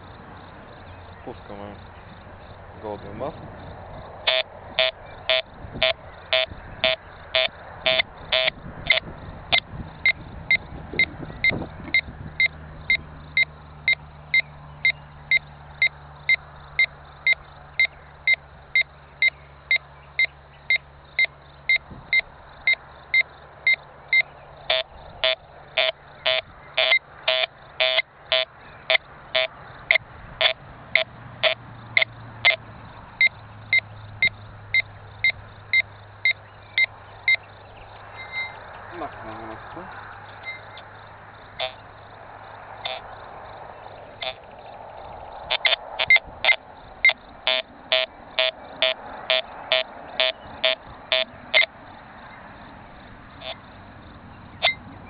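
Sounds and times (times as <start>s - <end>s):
metal detector beeping: 4.3s - 12.5s, 23.7s - 29.5s, 38.2s - 38.6s, 42.8s - 43.0s, 45.5s - 51.7s.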